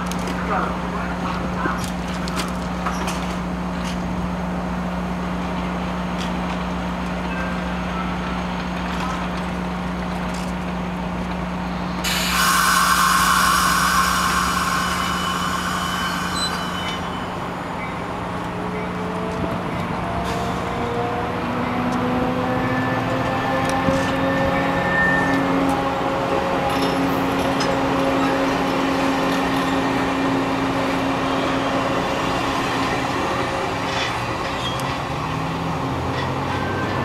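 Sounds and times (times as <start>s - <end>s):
rising tones of train: 0.0s - 37.0s
train humming: 0.0s - 37.0s
air brakes hissing: 12.0s - 18.2s.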